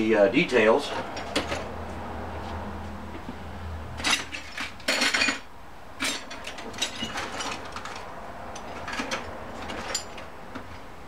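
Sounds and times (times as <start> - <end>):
metal tools clinking in a drawer: 0.9 - 1.7, 4.0 - 10.3.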